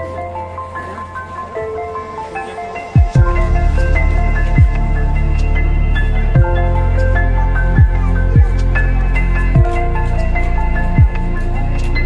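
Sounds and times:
ambient electronic music: 0.0s - 12.0s
deep falling bass sweep: 3.1s - 11.9s.

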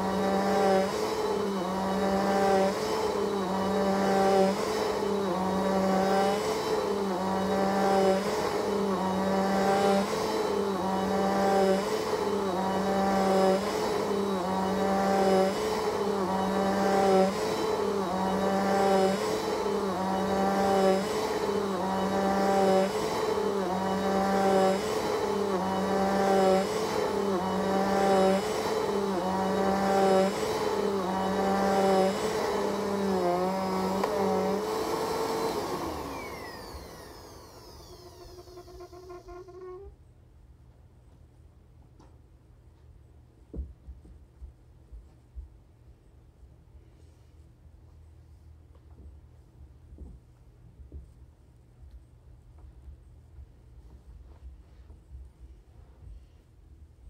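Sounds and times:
vacuum cleaner on carpet: 0.0s - 39.9s
vacuum motor winding down: 0.0s - 39.9s.

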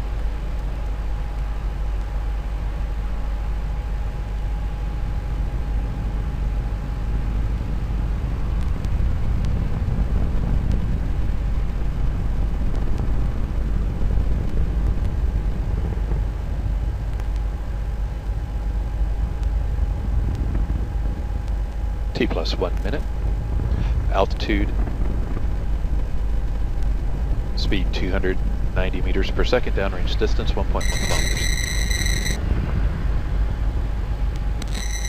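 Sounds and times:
rocket engines rumbling: 18.4s - 35.0s.

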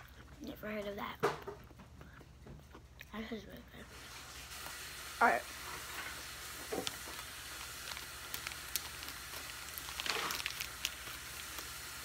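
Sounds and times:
foil snack wrapper crinkling: 4.0s - 12.0s.

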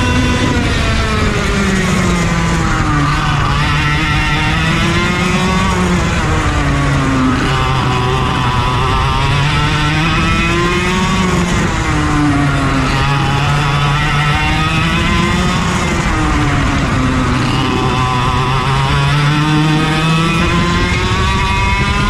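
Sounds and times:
kart engine revving: 0.0s - 22.0s.

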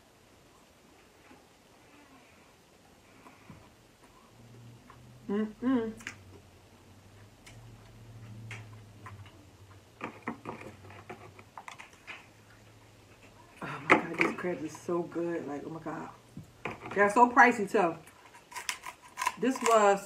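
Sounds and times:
faint low hum: 0.0s - 20.0s
person humming with enjoyment: 5.2s - 6.1s.

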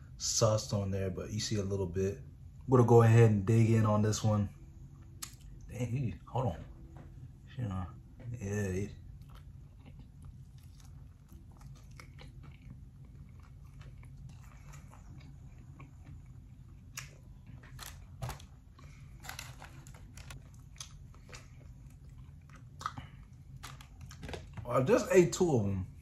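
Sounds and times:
person chewing crispy chicken: 9.0s - 24.6s.

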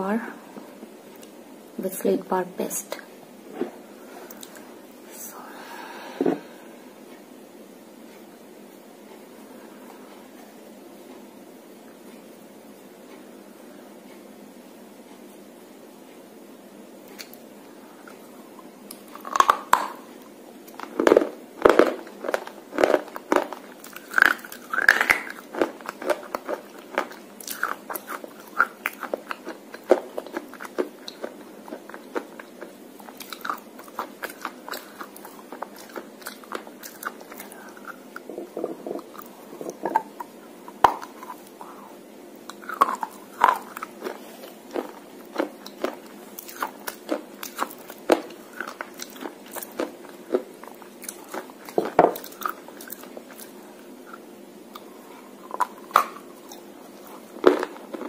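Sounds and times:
chewing crunches and snaps: 17.1s - 17.4s, 18.9s - 41.8s, 42.4s - 58.0s.

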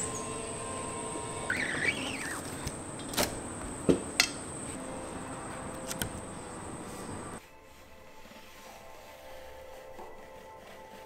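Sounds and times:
thin high whine: 0.0s - 3.6s
squeegee squeaking across mesh: 1.4s - 2.7s.

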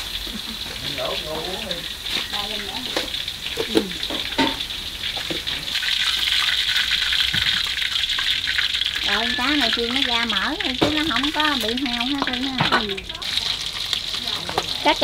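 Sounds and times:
oil sizzling in a wok: 0.0s - 15.0s
chopsticks knocking on pan: 10.7s - 11.3s, 12.1s - 13.0s.

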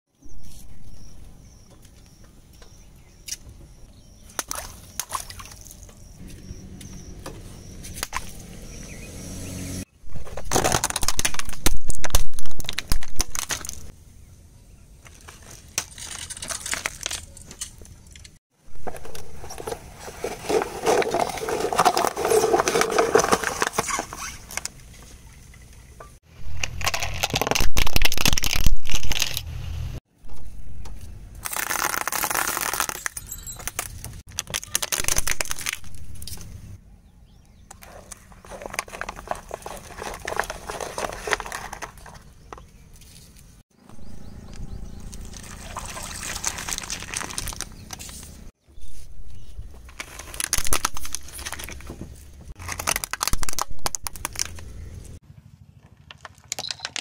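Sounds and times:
car tyre crushing plastic: 10.2s - 13.9s, 15.1s - 17.7s, 31.4s - 36.4s, 38.4s - 42.3s, 46.2s - 48.4s, 49.8s - 55.0s.

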